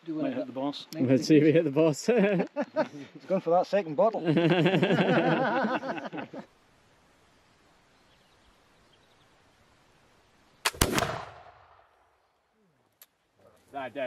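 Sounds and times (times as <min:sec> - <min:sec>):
musket firing: 0:10.6 - 0:11.9.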